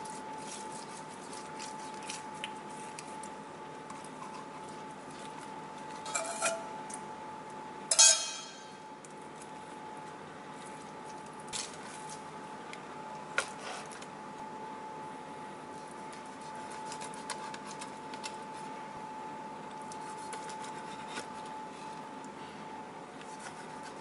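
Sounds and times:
faint hum: 0:00.0 - 0:24.0
spoon clinking on metal bowl: 0:07.9 - 0:08.7.

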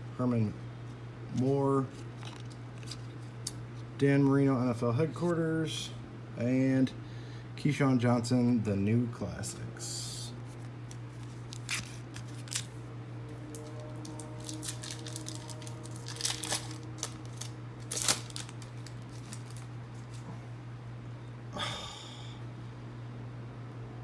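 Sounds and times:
steady low hum: 0:00.0 - 0:24.0
cards and wrapper rustling: 0:01.9 - 0:03.6, 0:10.8 - 0:12.8, 0:13.4 - 0:20.2.

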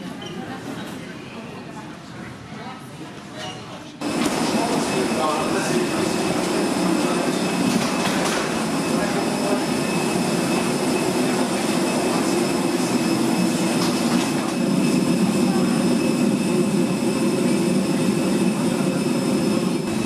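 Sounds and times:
airliner rumbling hum: 0:04.0 - 0:20.0
high whining tones: 0:04.0 - 0:20.0.

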